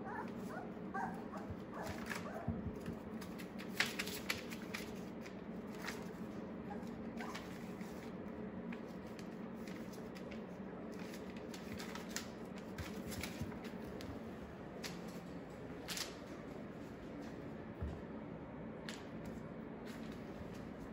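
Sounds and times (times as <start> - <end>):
steady low hum: 0.0 - 20.9
newspaper rustling and crinkling: 1.4 - 14.2, 14.8 - 16.4.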